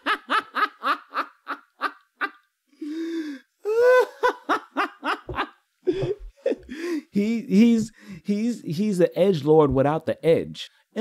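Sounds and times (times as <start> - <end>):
person laughing: 0.0 - 2.4, 3.6 - 7.0.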